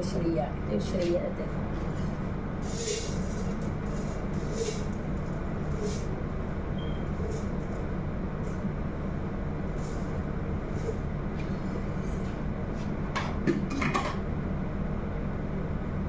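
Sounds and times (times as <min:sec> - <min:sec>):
steady low rumble: 0:00.0 - 0:13.2
vermicelli hissing in oil: 0:02.0 - 0:04.9.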